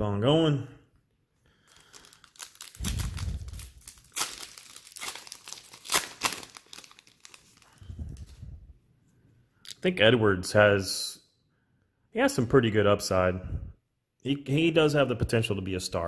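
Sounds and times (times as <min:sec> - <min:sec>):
foil wrapper crinkling and tearing: 0:01.6 - 0:08.4.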